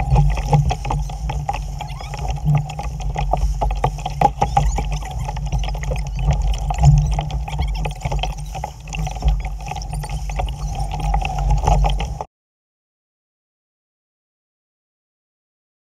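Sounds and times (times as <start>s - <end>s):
water slapping against hull: 0.0s - 12.3s.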